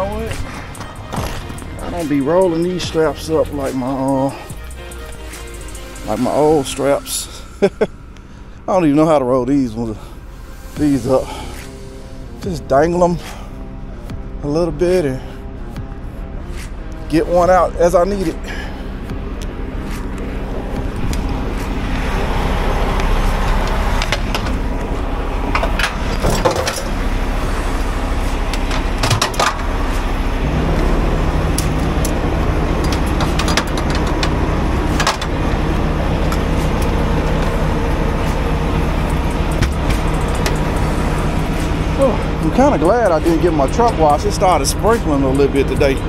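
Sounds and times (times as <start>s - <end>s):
diesel truck engine running: 0.0s - 46.0s
sharp clicks and knocks: 23.6s - 24.6s, 28.5s - 29.7s, 32.8s - 35.4s, 39.1s - 40.8s.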